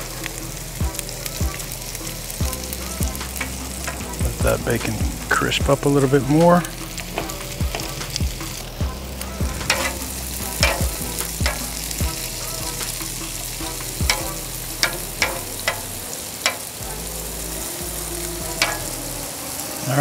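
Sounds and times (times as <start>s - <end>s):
food sizzling on a griddle: 0.0s - 20.0s
metal tongs tapping steel: 3.2s - 4.1s, 9.6s - 12.0s, 13.8s - 16.8s, 18.6s - 19.0s.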